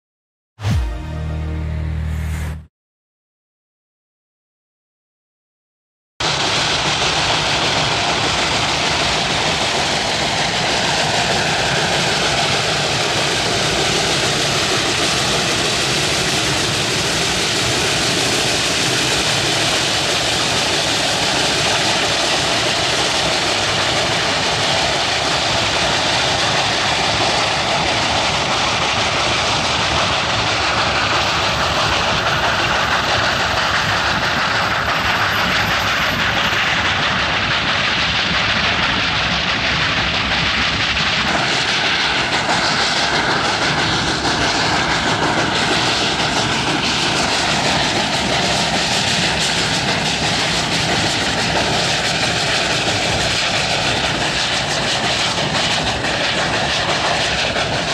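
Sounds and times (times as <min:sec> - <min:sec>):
steam locomotive exhaust: 0:06.2 - 0:57.9
train running gear on rails: 0:06.2 - 0:57.9.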